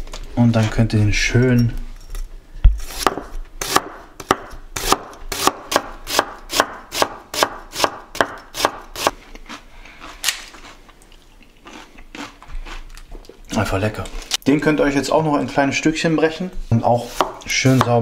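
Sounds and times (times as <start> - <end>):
knife slicing cabbage on board: 2.8 - 9.1, 17.0 - 18.0.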